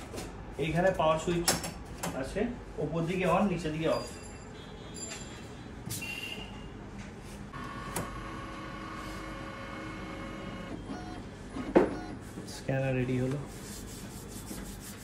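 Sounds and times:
photocopier clicking and whirring: 0:07.6 - 0:12.1.

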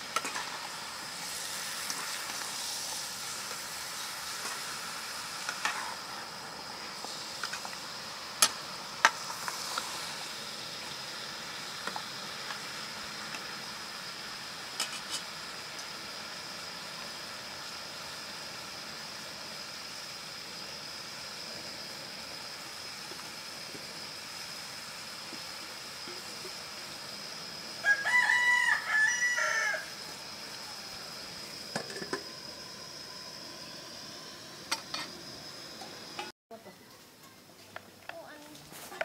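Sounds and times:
faint high hiss: 0:00.0 - 0:39.0
rooster crowing: 0:27.8 - 0:31.2.

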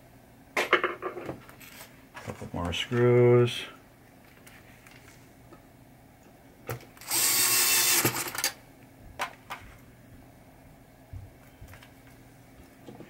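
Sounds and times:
cordless drill driving screw: 0:07.0 - 0:08.4.

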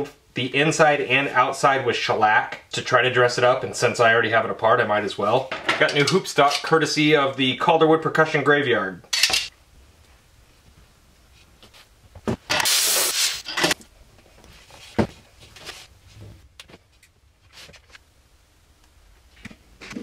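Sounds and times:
short loud hiss: 0:12.5 - 0:13.8.

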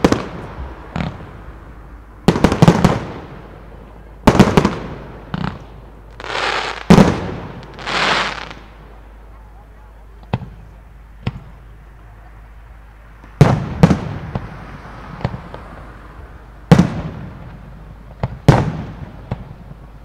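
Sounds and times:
firework booms with echo: 0:00.0 - 0:01.4, 0:02.2 - 0:03.5, 0:04.2 - 0:08.6, 0:13.4 - 0:14.5, 0:16.7 - 0:19.7
firework pops: 0:18.2 - 0:19.6.

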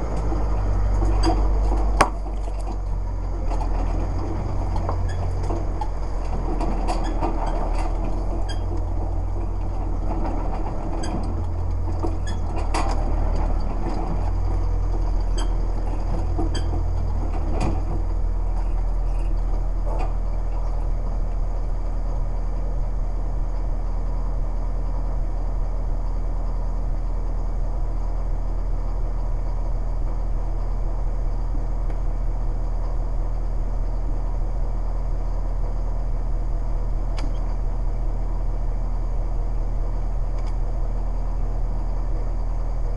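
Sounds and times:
small vehicle engine running: 0:00.0 - 0:42.9
vehicle body clanking and rattling: 0:00.0 - 0:42.9.

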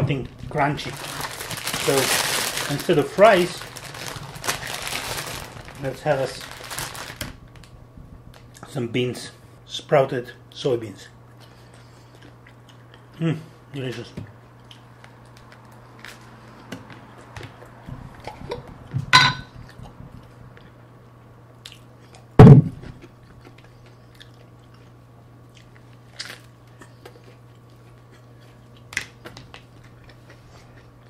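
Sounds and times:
person chewing food: 0:11.4 - 0:13.2, 0:23.0 - 0:31.0
loud thump: 0:22.4 - 0:22.9.

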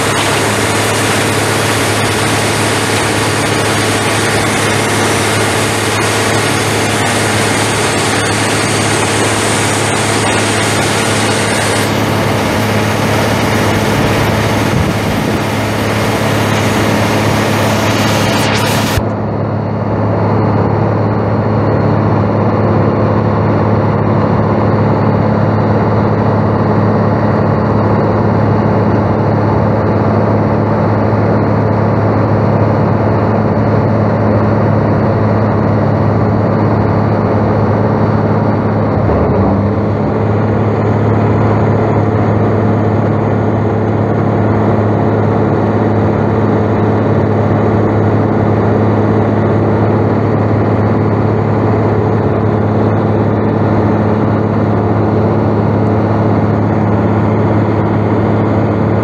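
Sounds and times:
loud hiss: 0:00.0 - 0:19.0
diesel engine running steadily: 0:00.0 - 0:59.0.

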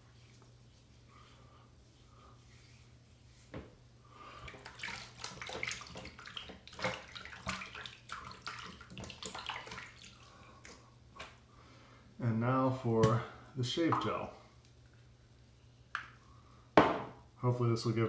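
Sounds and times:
water splashing in a sink: 0:04.3 - 0:11.3.

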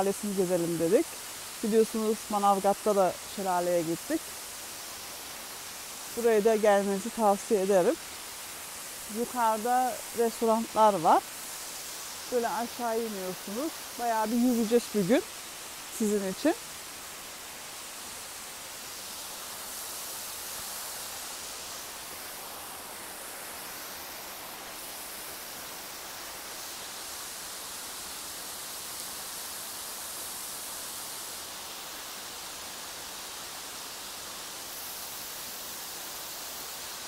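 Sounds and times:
waterfall splashing into pool: 0:07.8 - 0:37.0.

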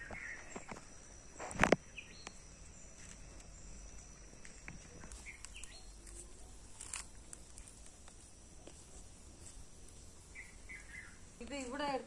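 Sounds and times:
faint bird chirps: 0:00.0 - 0:07.7, 0:10.2 - 0:11.4.

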